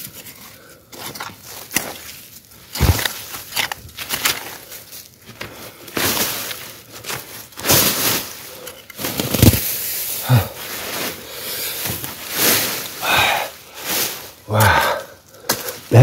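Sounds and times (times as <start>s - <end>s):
vines and roots rustling: 0.0s - 16.0s
hoe blade thumping ground: 2.7s - 4.5s, 9.1s - 9.7s.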